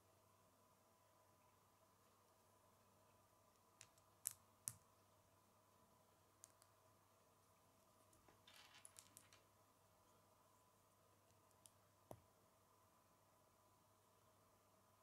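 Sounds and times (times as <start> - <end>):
faint steady hum: 0.0 - 15.0
light plastic rattling: 8.2 - 9.5
plastic pieces clicking together: 8.5 - 9.4.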